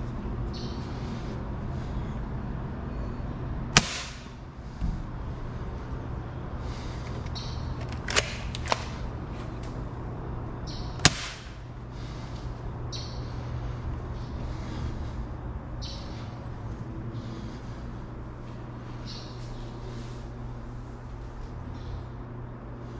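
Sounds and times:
steady low hum: 0.0s - 22.9s.

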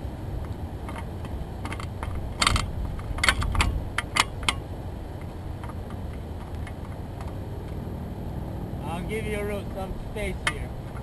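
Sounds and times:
wind rumble on microphone: 0.0s - 11.0s
sharp clicks and light knocks: 0.4s - 7.8s, 10.2s - 11.0s.

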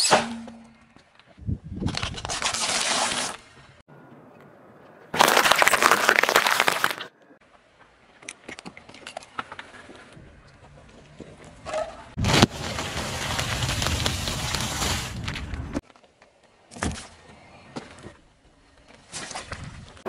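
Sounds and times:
tyre crunching snack bag: 5.2s - 7.1s.

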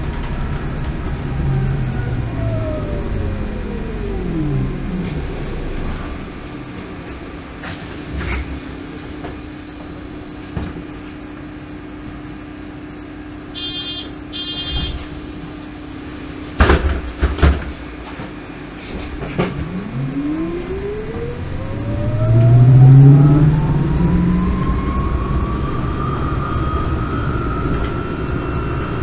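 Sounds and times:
electric motor whine: 0.0s - 7.5s, 19.2s - 29.0s
diesel engine drone: 0.0s - 11.1s, 18.0s - 29.0s
high beeping: 19.5s - 24.4s.

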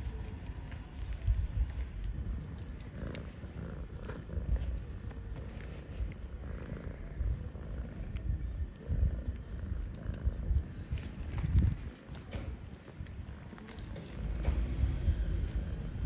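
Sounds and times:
cat purring: 2.0s - 12.4s.

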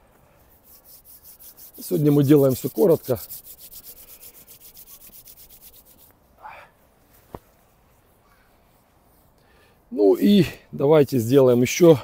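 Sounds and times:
palms rubbing together: 0.4s - 6.2s.

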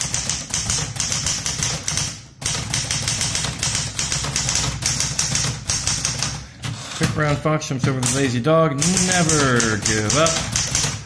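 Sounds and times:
manual typewriter key strikes: 0.0s - 6.4s, 7.2s - 11.0s.

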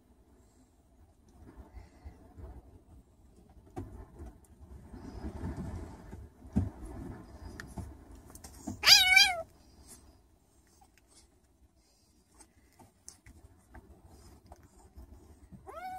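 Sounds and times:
kitten meowing: 8.8s - 9.5s.

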